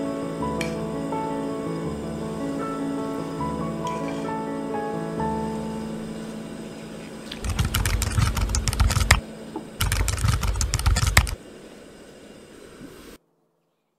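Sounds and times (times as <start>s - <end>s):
keyboard typing: 7.4s - 9.2s, 9.8s - 11.4s.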